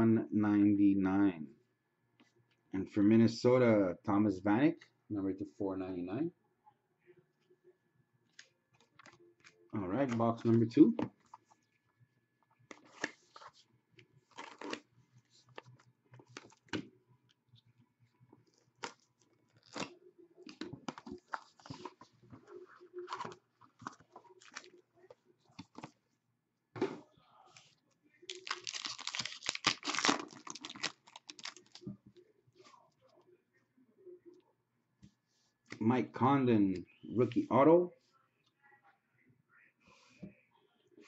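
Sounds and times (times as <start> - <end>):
wrapper tearing and crinkling: 14.3 - 14.8, 28.3 - 31.8.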